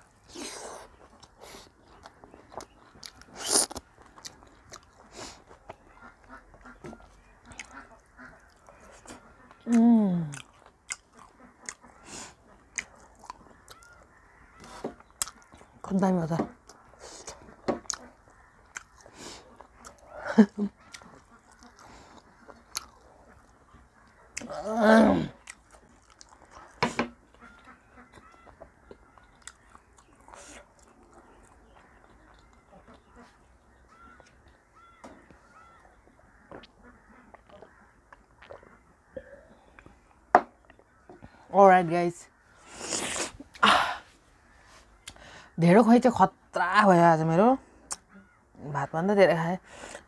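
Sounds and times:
person chewing: 0.0 - 15.8, 16.6 - 34.6, 36.5 - 41.3
slurp: 3.3 - 3.8, 42.7 - 43.6
lip smacks: 16.7 - 20.1, 45.0 - 45.2.

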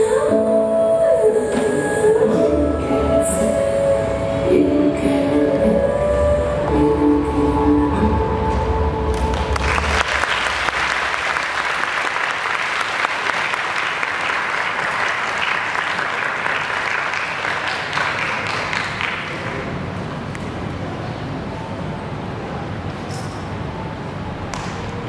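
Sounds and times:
dance music: 0.0 - 10.0
audience applauding: 9.1 - 19.8.

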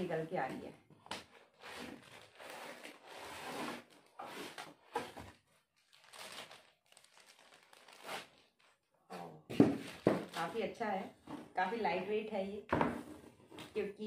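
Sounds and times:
packaging rustling and scraping: 1.2 - 8.9, 9.6 - 10.7.

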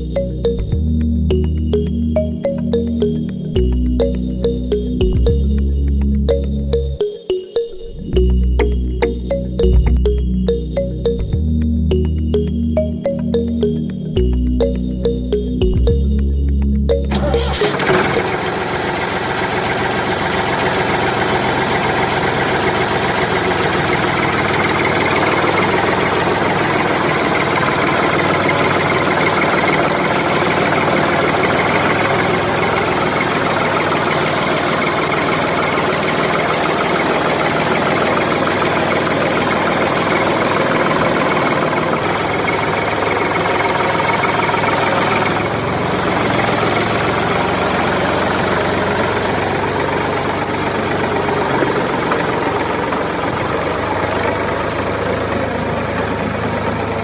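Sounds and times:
engine idling: 15.4 - 57.0.

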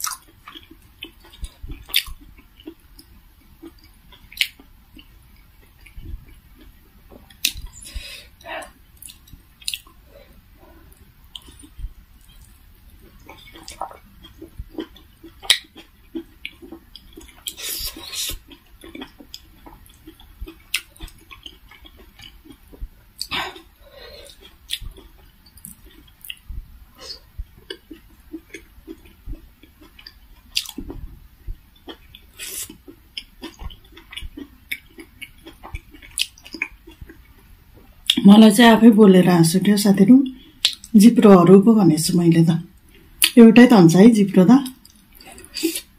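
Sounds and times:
mouth clicks and lip smacks: 0.0 - 5.1, 7.2 - 7.9, 11.3 - 26.6, 27.4 - 38.2, 40.6 - 41.0
wet chewing: 0.0 - 8.1, 9.0 - 38.2.

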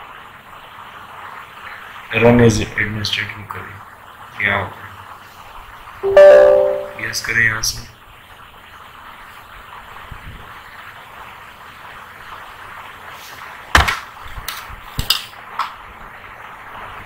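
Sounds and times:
low microphone hiss: 6.0 - 8.0.

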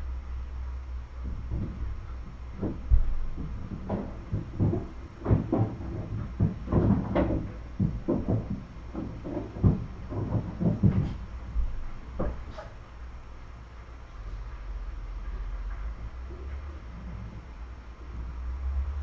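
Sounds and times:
soft thumps and knocks: 1.2 - 12.8.

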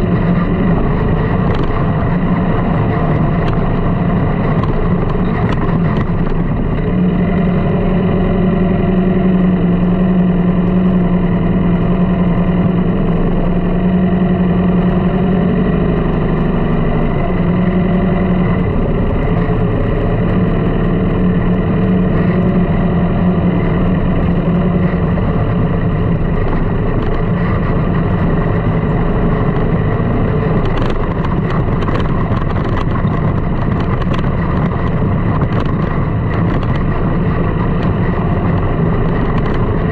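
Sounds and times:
dune buggy engine running: 0.0 - 39.9.

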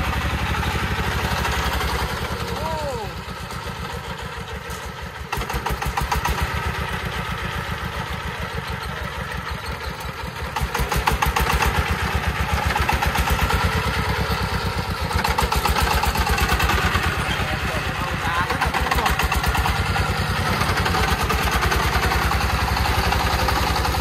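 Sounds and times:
diesel engine chugging: 0.0 - 24.0.

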